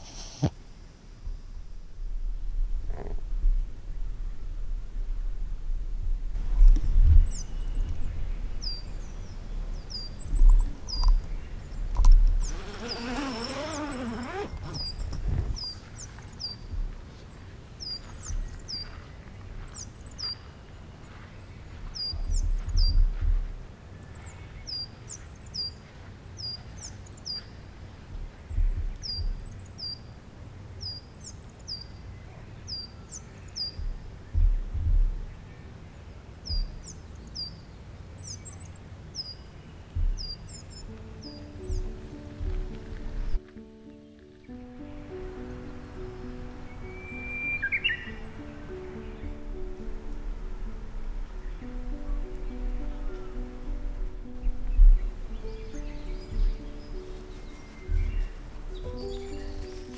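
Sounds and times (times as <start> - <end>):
microphone rumbles: 1.2 - 17.1, 21.8 - 24.2, 28.0 - 29.5, 33.7 - 35.5, 40.0 - 43.4, 49.2 - 59.9
songbird two-note call: 45.9 - 49.4.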